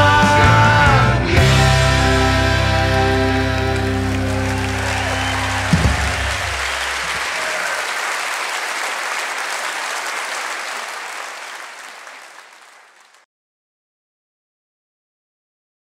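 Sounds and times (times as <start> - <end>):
band's low chord: 0.0 - 7.1
audience applauding: 2.8 - 13.2.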